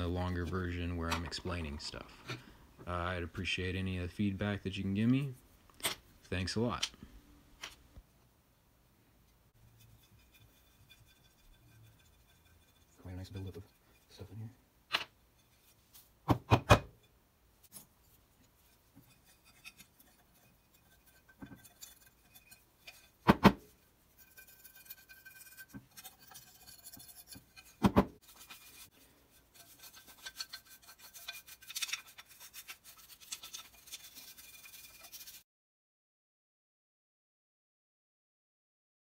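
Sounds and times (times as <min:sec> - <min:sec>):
metal pick scraping metal: 0:09.5 - 0:14.5, 0:17.0 - 0:35.4.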